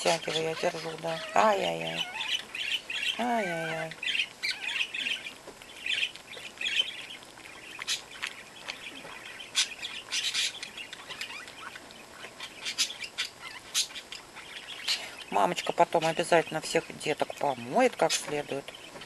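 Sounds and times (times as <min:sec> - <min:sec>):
puppies squeaking: 0:00.0 - 0:14.6.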